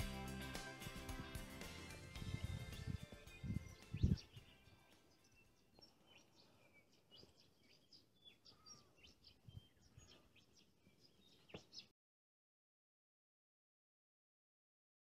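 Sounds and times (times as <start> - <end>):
faint bird chirps and calls: 2.3 - 11.9.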